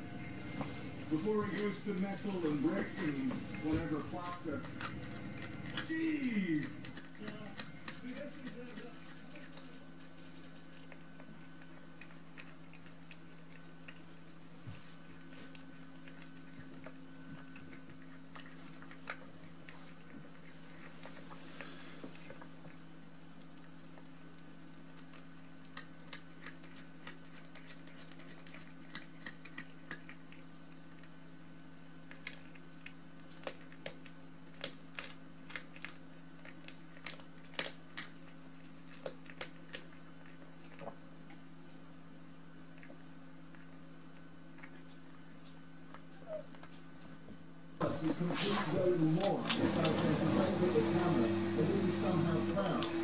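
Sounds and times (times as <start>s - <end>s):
steady low hum: 0.0s - 53.0s
cat chewing crunches: 0.1s - 53.0s.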